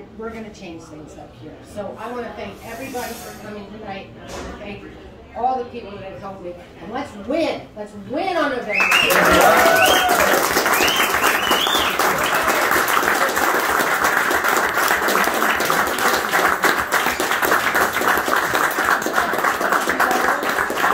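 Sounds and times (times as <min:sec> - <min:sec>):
voices cheering: 0:08.8 - 0:13.8
audience applauding: 0:08.8 - 0:20.9
close hands clapping: 0:08.8 - 0:20.9.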